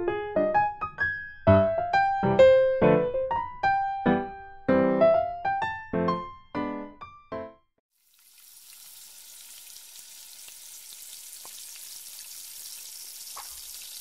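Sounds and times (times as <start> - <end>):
piano notes: 0.0 - 7.7
fish sizzling in oil: 7.9 - 14.0
oil popping: 8.0 - 14.0.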